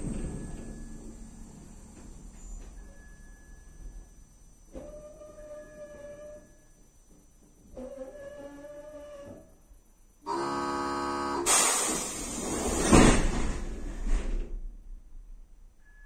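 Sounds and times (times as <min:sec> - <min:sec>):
steady buzzing tone: 0:10.3 - 0:11.5
pneumatic doors air rush: 0:11.4 - 0:14.6.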